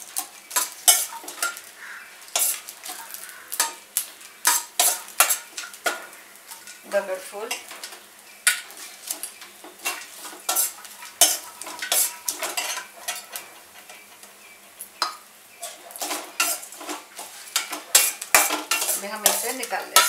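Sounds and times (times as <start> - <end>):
spoon scraping a metal pan: 0.1 - 3.8, 4.4 - 14.1, 15.0 - 20.0.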